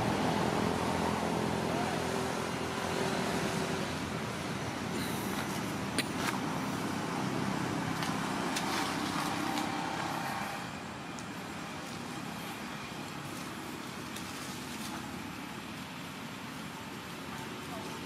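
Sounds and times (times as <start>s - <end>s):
outdoor background rumble: 0.0s - 18.0s
dry leaves crackling: 4.9s - 18.0s.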